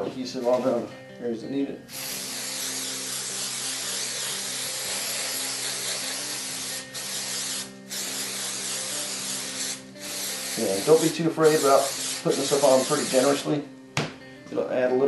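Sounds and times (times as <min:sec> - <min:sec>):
aerosol spray can hissing: 0:01.9 - 0:13.5.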